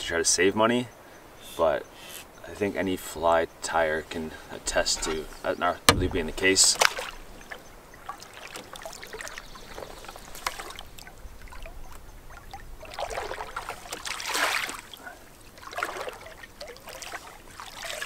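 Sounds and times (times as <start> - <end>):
water swishing and trickling: 0.0 - 18.0
canoe paddle stroking water: 1.5 - 18.0
faint clicks and knocks: 4.7 - 7.7.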